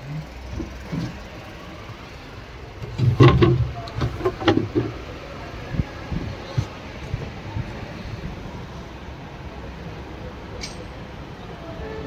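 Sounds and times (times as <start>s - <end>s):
low workshop rumble: 0.0s - 12.0s
knocks and clatter: 2.8s - 5.1s.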